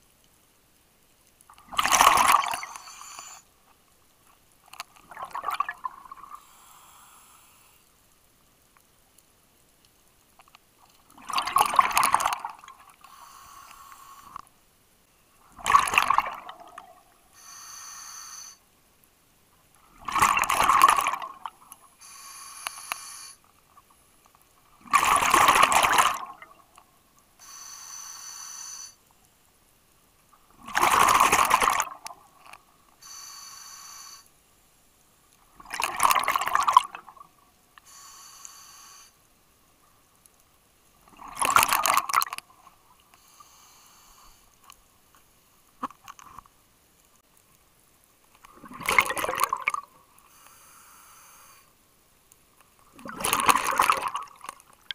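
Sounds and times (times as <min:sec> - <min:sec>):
exhaled bubbles bursting: 0:01.7 - 0:02.8, 0:05.1 - 0:06.4, 0:11.2 - 0:12.7, 0:15.6 - 0:17.0, 0:20.0 - 0:21.5, 0:24.8 - 0:26.6, 0:30.6 - 0:32.2, 0:35.6 - 0:37.2, 0:48.5 - 0:49.9, 0:52.9 - 0:54.6
hissing regulator inhalations: 0:02.6 - 0:03.4, 0:13.1 - 0:14.4, 0:17.4 - 0:18.6, 0:22.0 - 0:23.4, 0:27.4 - 0:29.0, 0:33.0 - 0:34.3, 0:37.8 - 0:39.2, 0:43.2 - 0:44.6.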